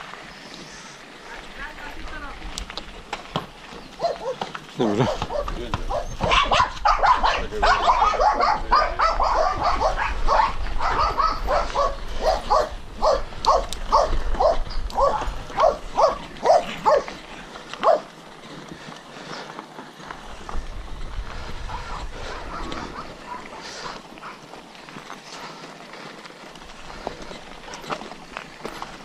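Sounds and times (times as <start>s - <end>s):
dog barking: 4.0s - 17.2s, 17.8s - 18.1s, 21.8s - 24.4s.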